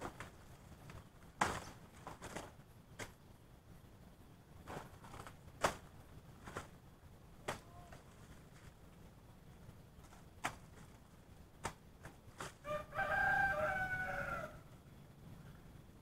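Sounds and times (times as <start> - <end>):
sharp knocks among plants: 0.0 - 3.2, 4.6 - 6.8, 7.4 - 8.1, 10.0 - 11.0, 11.6 - 12.6
rustling of plants: 0.0 - 3.3, 4.4 - 14.7.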